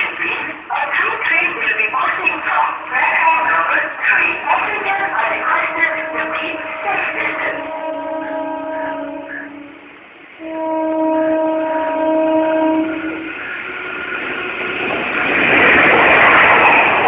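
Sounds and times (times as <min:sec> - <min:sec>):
approaching train rushing: 0:00.0 - 0:17.0
locomotive horn blast: 0:05.2 - 0:13.4.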